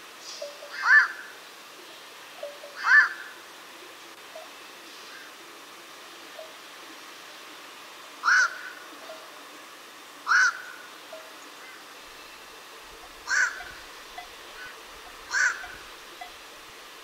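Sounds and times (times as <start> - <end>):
heron calls: 0.4 - 1.2, 2.4 - 3.2, 8.2 - 8.8, 10.3 - 10.8, 12.9 - 16.5.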